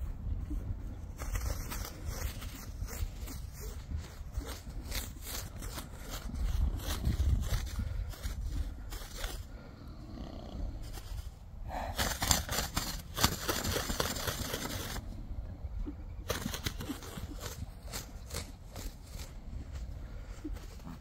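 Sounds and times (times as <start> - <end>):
hoofbeats on grass: 0.0 - 9.4, 16.2 - 21.0
low steady rumble: 14.8 - 16.3.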